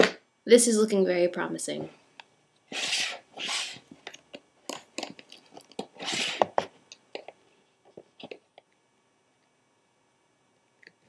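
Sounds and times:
plastic mold scraping rubs: 5.0 - 7.3.

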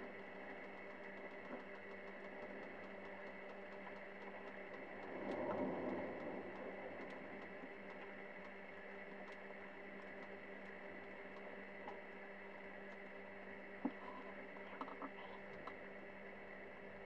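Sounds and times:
low electrical hum with hiss: 0.0 - 17.0.

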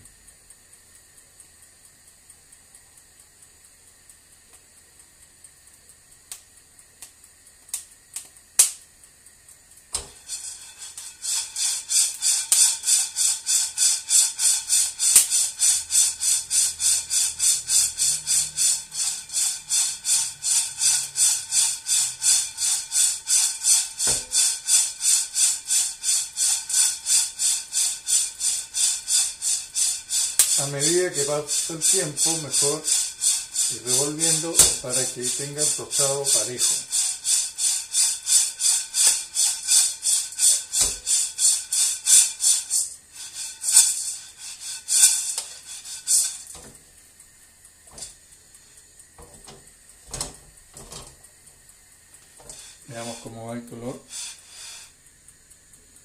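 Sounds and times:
faint steady hiss: 0.0 - 56.0
sharp clicks: 2.8 - 10.2, 20.9 - 31.8
coffee beans rattling in a pan: 7.6 - 56.0.

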